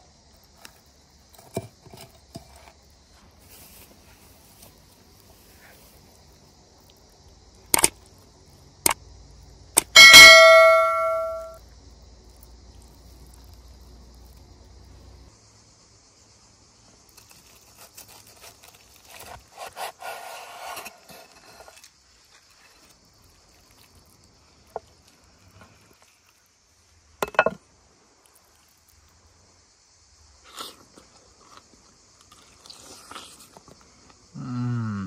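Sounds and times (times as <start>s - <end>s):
high insect buzz: 0.0s - 35.0s
cleaver chop with metallic ring: 9.8s - 11.6s.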